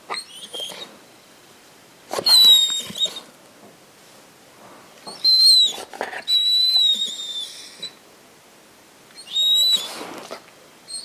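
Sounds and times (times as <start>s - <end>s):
dog whining: 0.0s - 1.0s, 2.1s - 3.3s, 5.0s - 8.0s, 9.2s - 11.0s.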